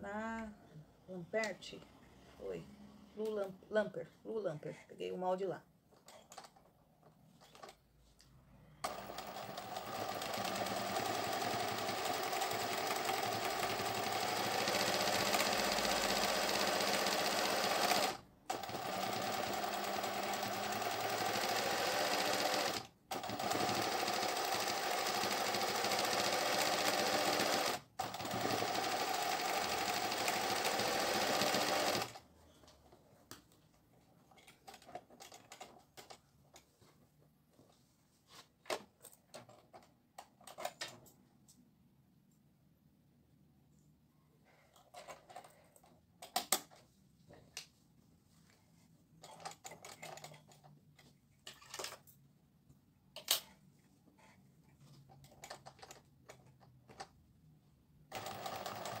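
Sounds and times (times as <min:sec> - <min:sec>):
sewing machine running: 0:08.8 - 0:32.2, 0:58.1 - 0:59.0.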